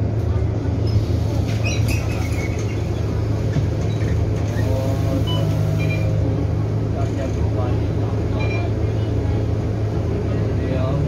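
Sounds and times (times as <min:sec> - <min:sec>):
bus engine idling: 0:00.0 - 0:11.0.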